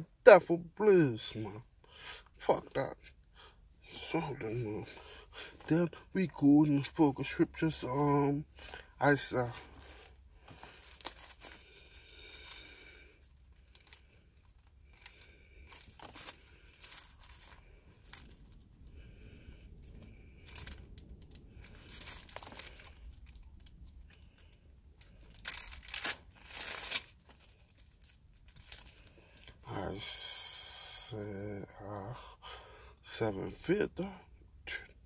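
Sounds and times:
thin pages rustling: 9.6 - 18.8, 19.8 - 29.4
loud page flips: 20.5 - 23.4, 25.0 - 29.0.

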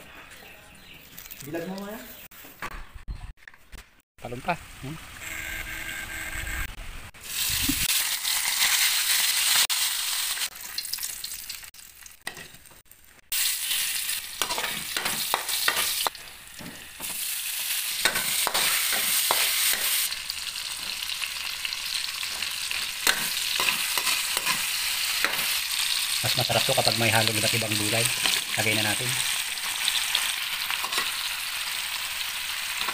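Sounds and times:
hot oil sizzling in a wok: 7.2 - 32.9
metal spatula scraping a pan: 22.7 - 25.5.

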